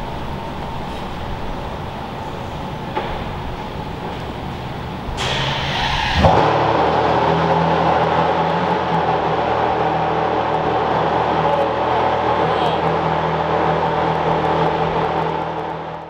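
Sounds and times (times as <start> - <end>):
car engine idling loudly: 4.8 - 16.0.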